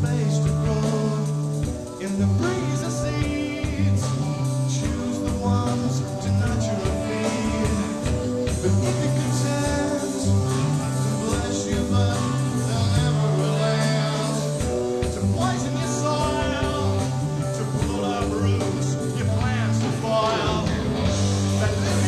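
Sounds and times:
bass guitar notes: 0.0s - 22.0s
drums and cymbals: 0.0s - 22.0s.

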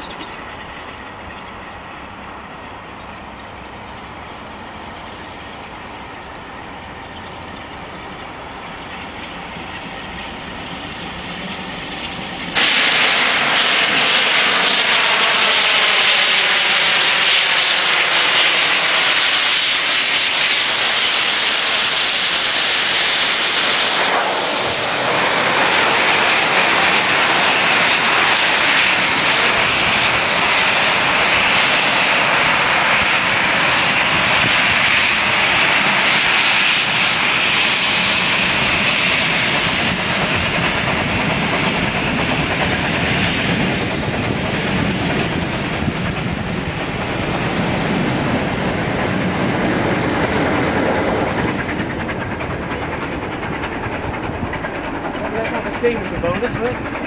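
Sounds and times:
diesel locomotive passing: 0.0s - 57.0s
steam locomotive exhaust hiss: 0.0s - 57.0s
train wheels rushing on rail: 0.0s - 57.0s.

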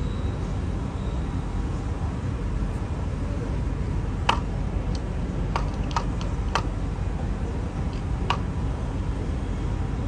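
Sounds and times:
steady low rumble: 1.3s - 9.3s.

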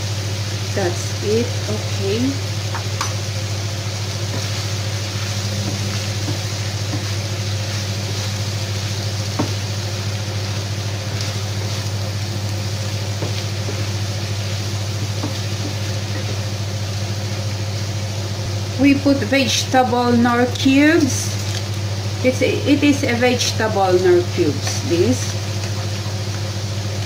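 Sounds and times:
low hum: 0.0s - 25.8s
food sizzling in a frying pan: 0.0s - 27.0s
spatula tapping a pan: 5.6s - 7.3s, 9.3s - 9.7s.

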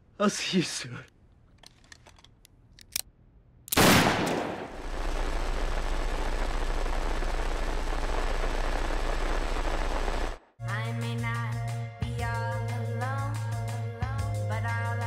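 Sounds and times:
handgun shot: 3.7s - 4.7s
low hum: 3.9s - 10.4s.

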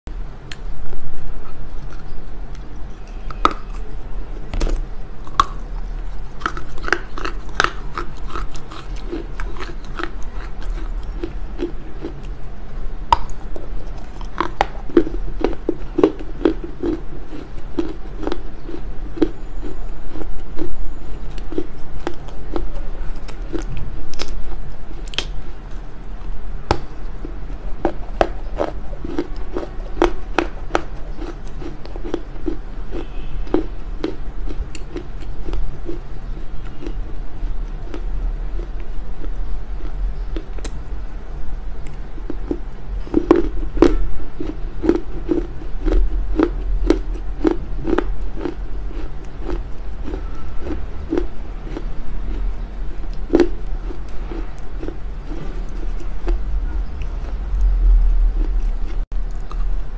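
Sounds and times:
person chewing: 1.4s - 40.8s, 41.7s - 59.9s
clay cracking between teeth: 21.3s - 25.8s.

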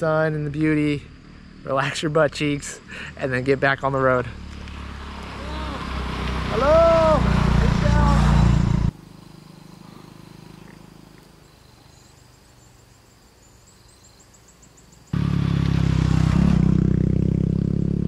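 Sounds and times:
motorbike passing close: 2.9s - 11.4s, 15.1s - 18.0s
small motorbike engine: 4.3s - 11.2s, 15.1s - 18.0s.

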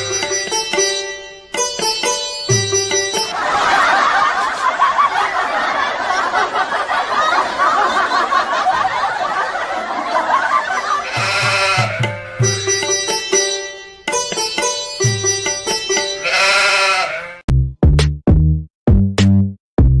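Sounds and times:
background music: 0.0s - 3.7s, 10.9s - 20.0s
many voices laughing: 3.3s - 12.3s.

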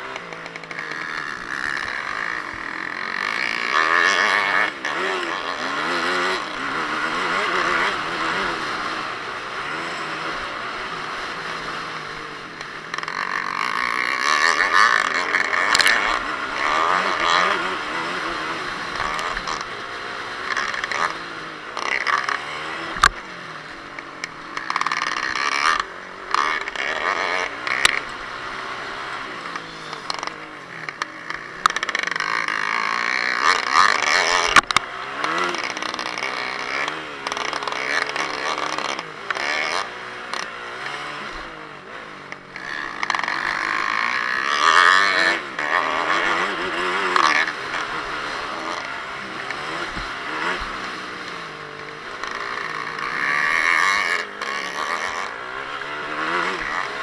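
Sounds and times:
dirt bike engine revving: 0.0s - 57.0s.

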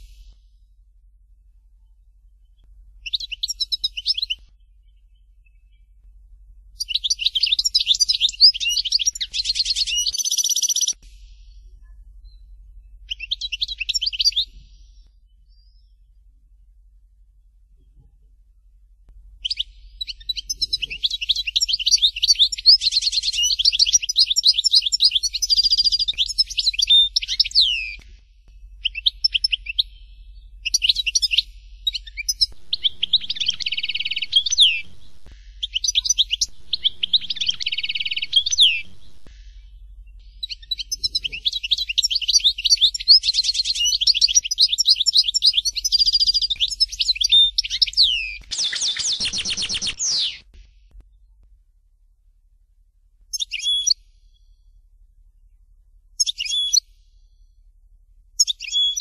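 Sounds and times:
goldfinch singing: 3.0s - 5.8s, 6.8s - 11.0s, 13.1s - 15.8s, 19.4s - 28.0s, 28.8s - 50.4s, 53.3s - 54.0s, 56.2s - 56.8s.

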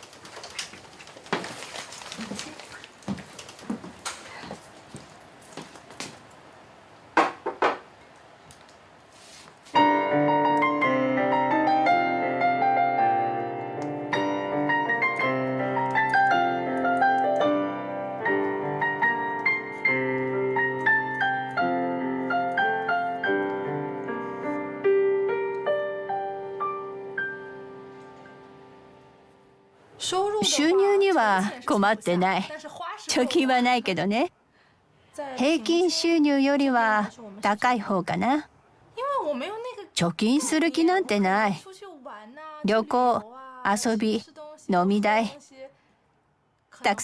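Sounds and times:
piano music: 9.8s - 30.6s.

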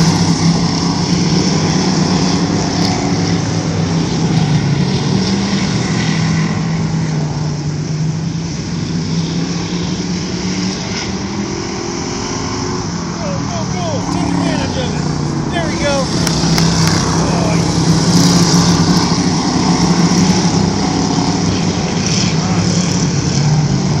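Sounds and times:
race car engines passing: 0.0s - 24.0s.

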